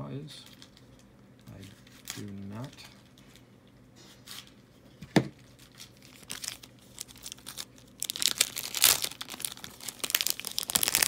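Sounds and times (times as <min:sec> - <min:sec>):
foil wrapper crinkling and tearing: 0:01.6 - 0:03.4, 0:05.4 - 0:11.0.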